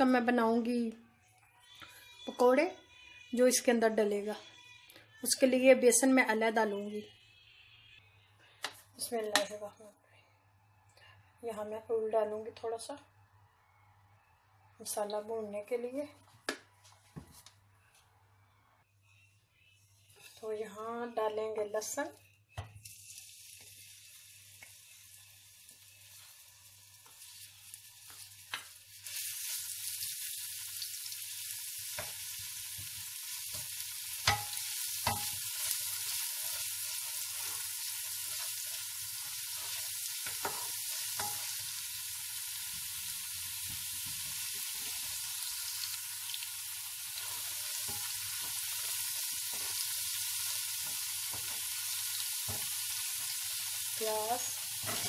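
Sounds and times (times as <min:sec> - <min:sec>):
garlic sizzling in hot oil: 0:22.8 - 0:55.0.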